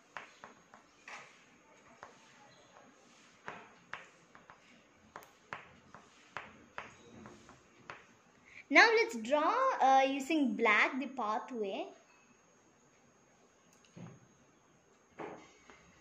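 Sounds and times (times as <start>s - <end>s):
oil pastel scratching on paper: 1.1s - 6.4s.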